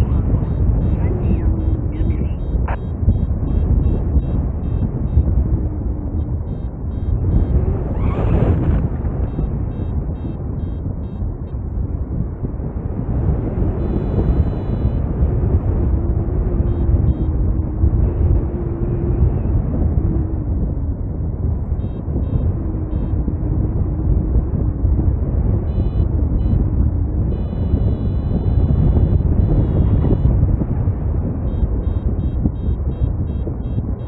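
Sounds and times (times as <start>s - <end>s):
wind rushing over microphone: 0.0s - 34.0s
variometer short high beeps: 0.1s - 5.3s, 6.2s - 7.6s, 9.2s - 11.2s, 13.8s - 15.0s, 16.7s - 17.3s, 25.7s - 26.6s, 27.3s - 30.3s, 31.5s - 34.0s.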